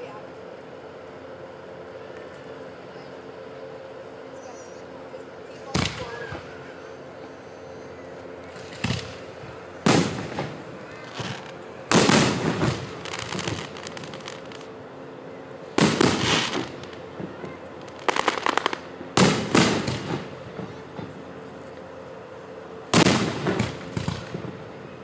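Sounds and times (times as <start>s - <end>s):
fireworks bangs: 5.7s - 6.5s, 8.5s - 14.7s, 15.7s - 21.2s, 22.9s - 24.8s
fireworks crackling: 8.3s - 14.8s, 15.5s - 21.8s, 22.9s - 24.9s.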